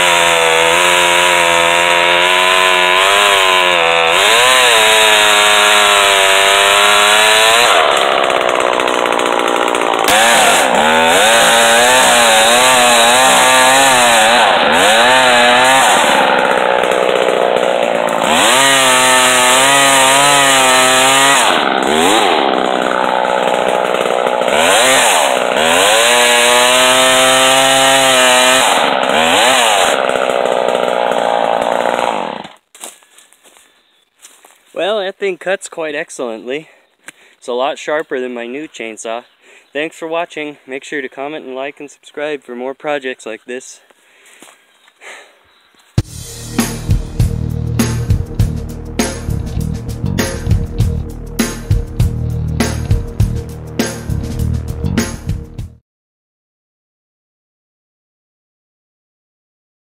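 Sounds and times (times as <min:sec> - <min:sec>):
chainsaw cutting wood: 0:00.0 - 0:33.6, 0:46.0 - 0:54.2.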